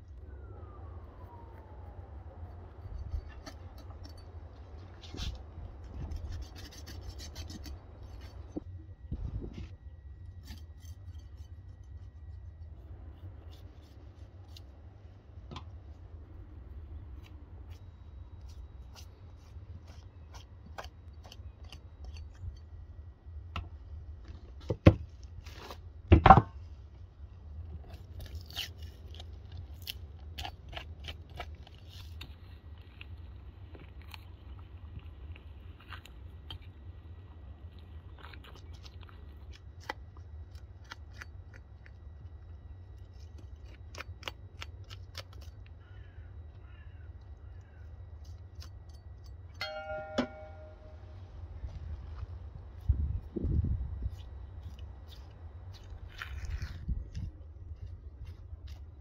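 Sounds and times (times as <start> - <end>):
knife slicing meat: 6.1 - 8.4
small clicks and crackles: 37.7 - 46.0.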